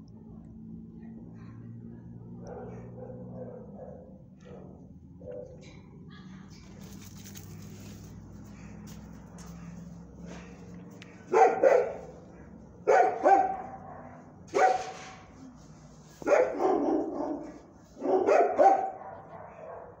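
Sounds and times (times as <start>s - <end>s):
dog barking: 2.4s - 5.7s, 11.3s - 15.2s, 16.2s - 20.0s.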